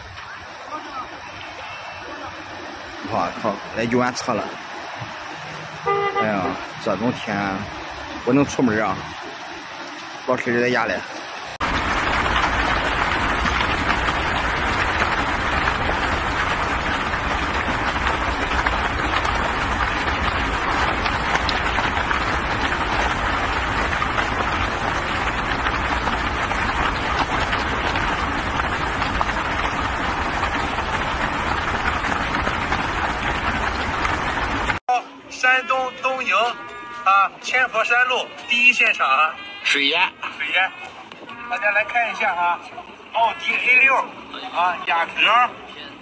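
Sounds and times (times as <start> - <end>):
floodwater rushing over road: 0.0 - 34.8.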